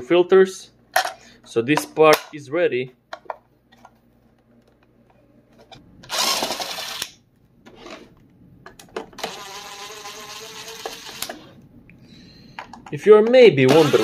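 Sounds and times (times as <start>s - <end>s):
cordless drill whining: 6.1s - 7.0s, 13.7s - 14.0s.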